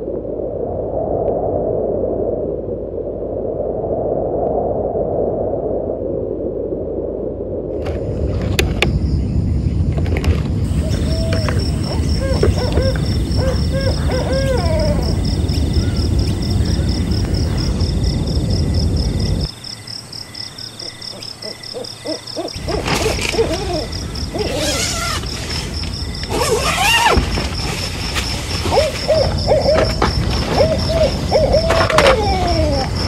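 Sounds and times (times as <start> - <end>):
bird calling: 10.7 - 17.7, 20.5 - 33.0.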